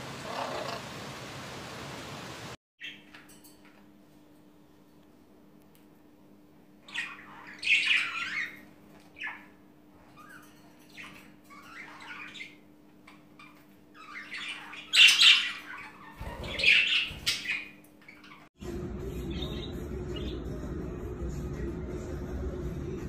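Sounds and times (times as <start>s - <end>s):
budgerigars chirping and squawking: 6.8s - 18.5s.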